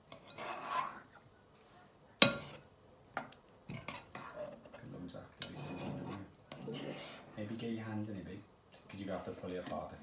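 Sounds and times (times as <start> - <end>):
spoon stirring slime in a bowl: 0.0 - 1.1, 3.2 - 7.4.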